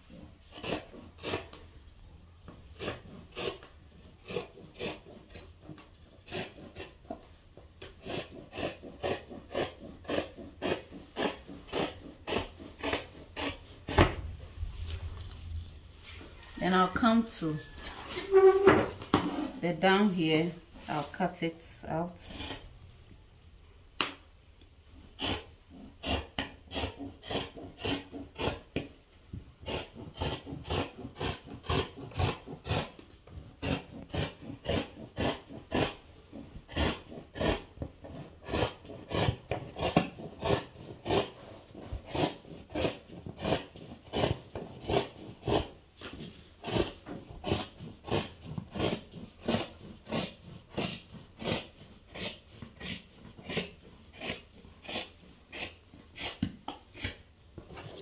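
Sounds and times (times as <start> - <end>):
shears snipping cloth: 7.8 - 14.2, 25.2 - 28.6, 29.6 - 58.0.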